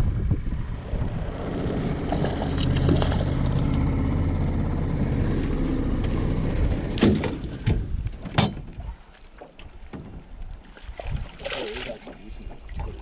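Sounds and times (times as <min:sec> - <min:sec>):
wind noise: 0:00.0 - 0:03.9, 0:06.4 - 0:09.0, 0:10.2 - 0:11.4
boat engine low hum: 0:00.0 - 0:13.0.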